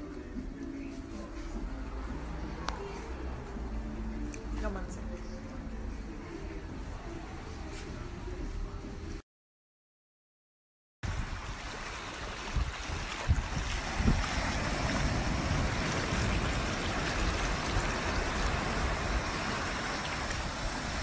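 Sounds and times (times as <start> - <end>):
wind buffeting microphone: 11.0 - 21.0
ocean surf on a beach: 11.1 - 21.0.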